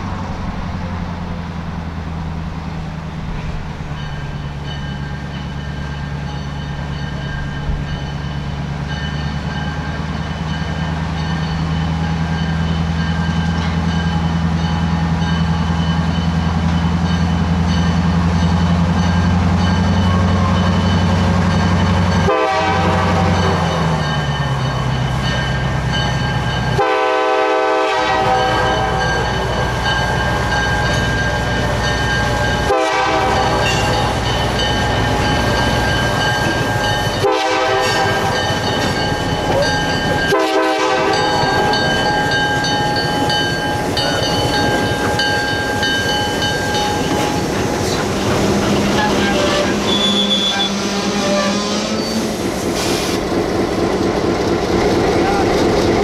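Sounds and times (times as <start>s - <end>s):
diesel locomotive engine droning: 0.0s - 56.0s
locomotive horn blasts: 22.2s - 23.6s, 26.7s - 29.3s, 32.6s - 34.0s, 37.1s - 38.5s, 40.2s - 41.8s, 48.7s - 52.0s.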